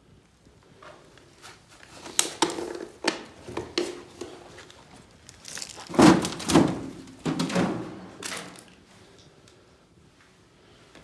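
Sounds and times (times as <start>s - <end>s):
crinkling scrape: 1.0s - 3.0s, 3.8s - 6.6s
footsteps crunching on debris: 3.7s - 6.6s.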